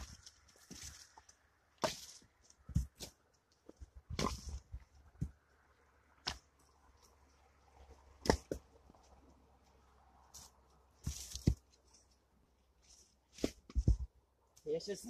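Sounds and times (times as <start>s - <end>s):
rustling: 0.0s - 5.5s, 6.2s - 14.2s
firewood pieces knocking together: 8.2s - 9.0s.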